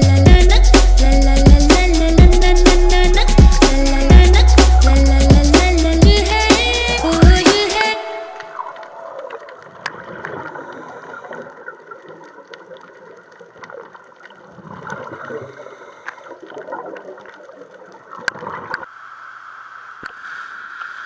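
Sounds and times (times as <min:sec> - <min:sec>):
small clicks and crackles: 0:09.2 - 0:15.2.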